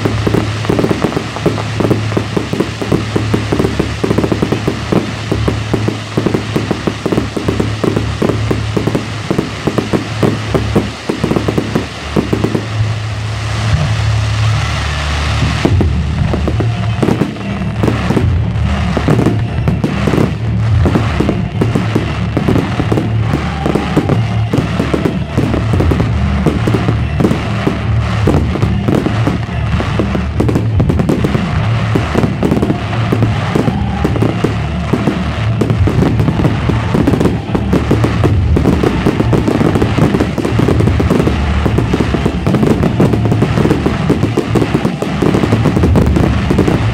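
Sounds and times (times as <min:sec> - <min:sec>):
fireworks bursts and crackles: 0:00.0 - 0:46.9
music playing: 0:00.0 - 0:46.9.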